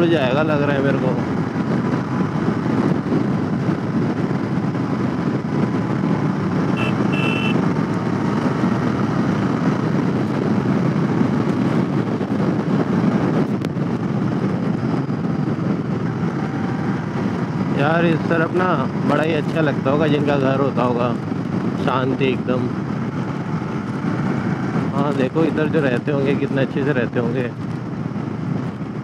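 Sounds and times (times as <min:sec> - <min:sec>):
road noise: 0:00.0 - 0:29.0
wind blast on microphone: 0:00.0 - 0:29.0
motorcycle engine: 0:01.0 - 0:18.1, 0:21.1 - 0:25.6.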